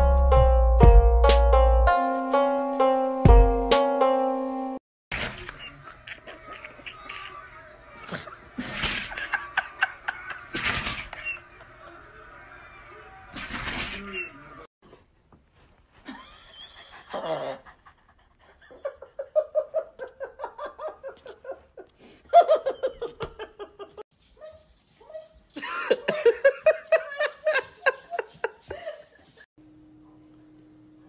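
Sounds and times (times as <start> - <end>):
rhythmic bursts of laughter: 5.7 - 12.4.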